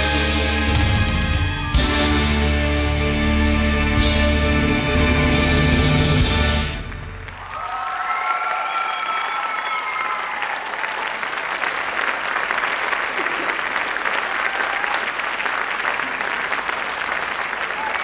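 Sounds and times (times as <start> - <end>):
audience applauding: 6.6 - 18.0
cheering calls: 7.3 - 18.0.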